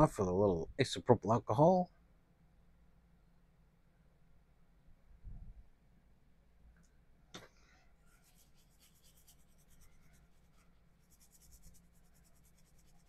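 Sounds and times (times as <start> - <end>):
brush scrubbing circuit board: 8.1 - 13.0.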